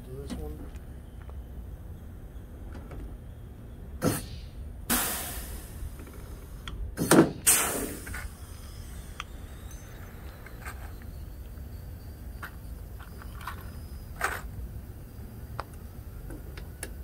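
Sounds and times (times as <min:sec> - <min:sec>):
air hissing: 0:04.0 - 0:17.0.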